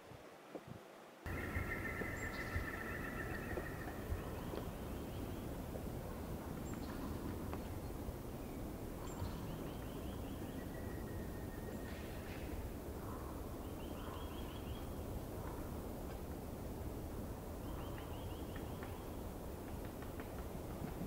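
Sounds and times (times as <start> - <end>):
outdoor background hiss: 0.0 - 21.0
bird calling: 1.3 - 5.5, 13.0 - 15.6.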